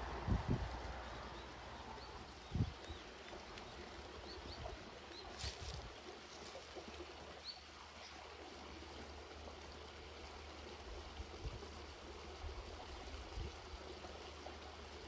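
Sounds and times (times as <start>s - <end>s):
running water rushing: 0.0s - 15.0s.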